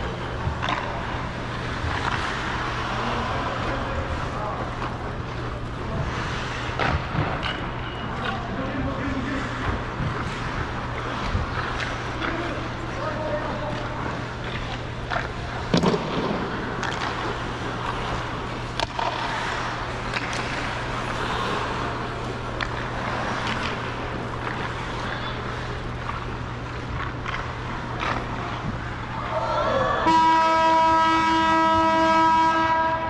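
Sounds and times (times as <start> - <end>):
steady low hum: 0.0 - 33.0
ice skates scraping on ice: 0.6 - 7.1, 8.9 - 28.6.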